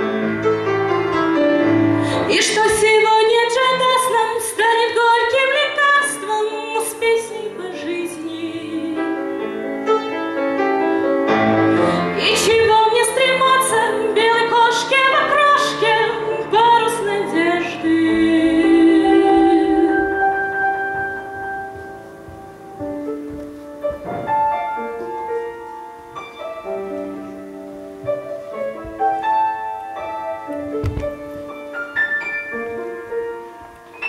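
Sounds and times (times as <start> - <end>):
grand piano: 0.0 - 34.0
woman singing: 2.1 - 9.6, 11.9 - 20.9.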